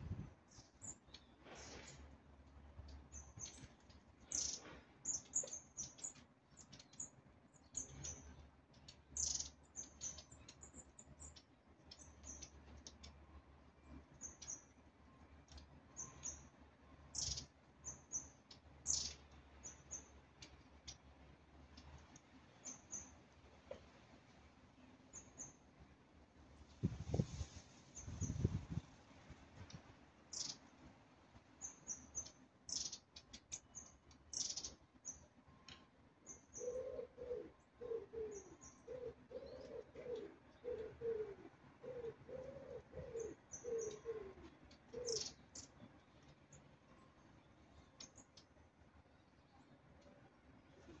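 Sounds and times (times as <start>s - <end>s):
birds calling high thin calls: 3.1s - 13.1s, 17.1s - 21.0s, 30.3s - 30.6s, 31.6s - 35.2s, 36.3s - 45.8s.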